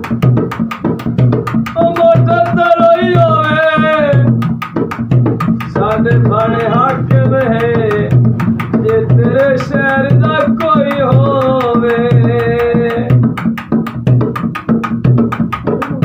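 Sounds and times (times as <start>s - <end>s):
barrel drum beating: 0.0s - 16.0s
man singing long held notes: 1.8s - 4.4s, 5.7s - 8.2s, 8.8s - 13.2s.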